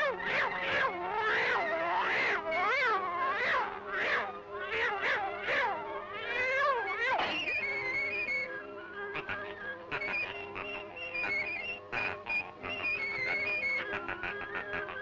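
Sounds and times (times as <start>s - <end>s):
cartoon cat meowing: 1.2s - 3.6s.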